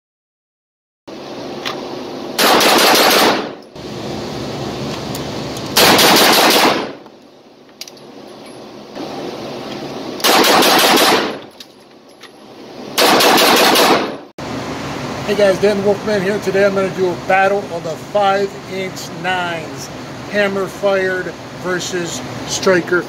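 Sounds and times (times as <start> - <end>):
steady background noise: 1.1 - 23.0
rapid pistol shots with echo: 2.4 - 3.6, 5.8 - 7.0, 10.2 - 11.4, 13.0 - 14.2.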